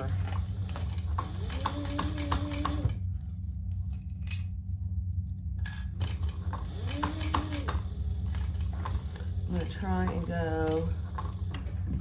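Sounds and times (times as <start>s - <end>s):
sewing machine stitching: 0.0s - 3.0s, 6.0s - 12.0s
steady low hum: 0.0s - 12.0s.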